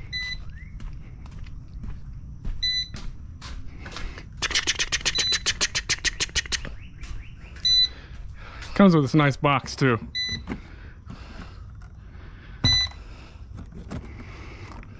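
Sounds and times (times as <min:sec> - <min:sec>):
short electronic beep: 0:00.1 - 0:00.5, 0:02.6 - 0:02.9, 0:10.1 - 0:10.4.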